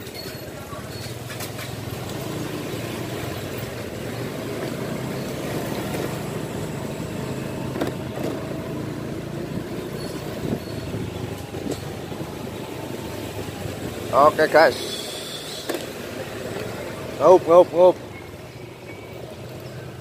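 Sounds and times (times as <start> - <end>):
road noise: 0.0 - 20.0
motorcycle engine running: 0.7 - 14.4.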